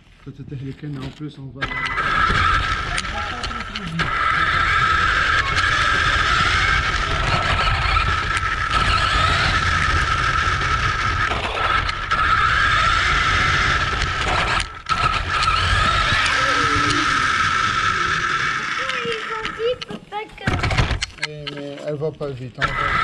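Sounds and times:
electric motor whine: 1.6s - 21.1s, 22.6s - 23.0s
tyres rumbling on asphalt: 1.6s - 21.2s.

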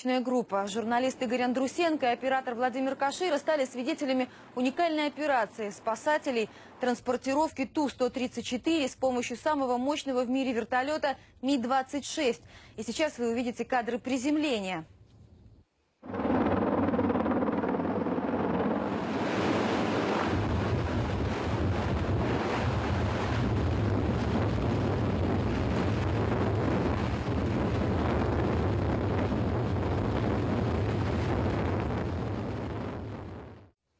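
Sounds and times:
helicopter rotor noise: 16.0s - 20.2s
wind buffeting microphone: 16.1s - 33.6s.

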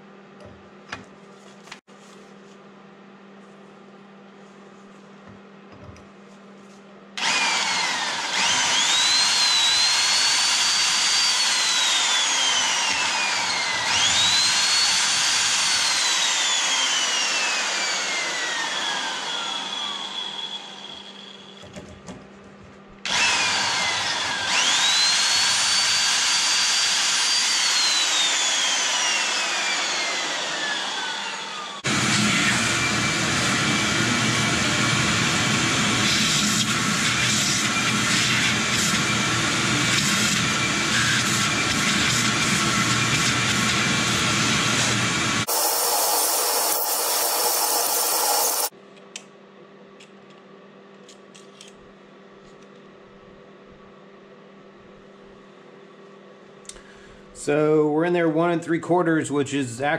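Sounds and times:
electric drill whining: 7.2s - 21.6s, 23.1s - 48.7s.

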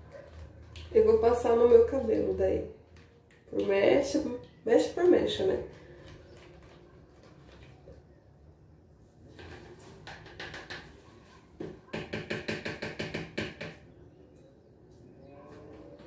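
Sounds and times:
hard plastic knocking: 9.4s - 11.0s, 11.6s - 13.8s.

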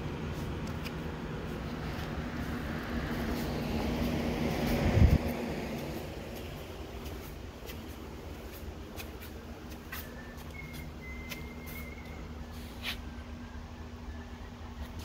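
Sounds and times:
steady low hum: 0.0s - 15.0s
faint high whistle: 9.9s - 14.8s.

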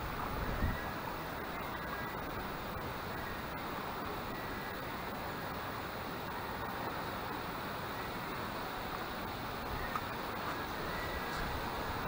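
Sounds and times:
wind rumble on microphone: 0.0s - 1.3s, 9.6s - 12.0s
rushing river water: 0.0s - 12.0s.

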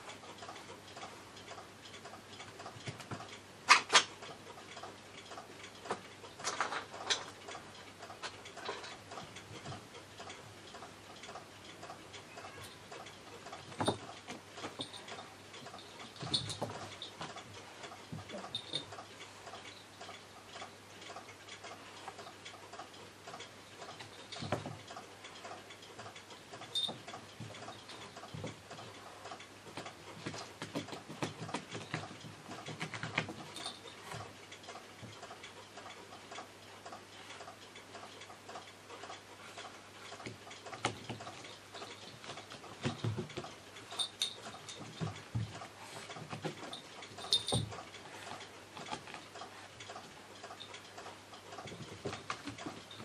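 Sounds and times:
small jingle bell tinkling: 33.5s - 34.1s, 43.9s - 45.1s, 46.7s - 47.8s.

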